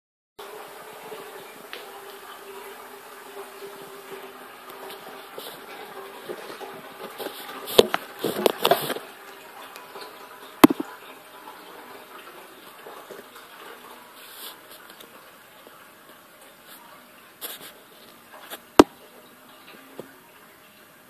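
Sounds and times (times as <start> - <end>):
camera handling knocks and rustles: 10.6 - 10.8.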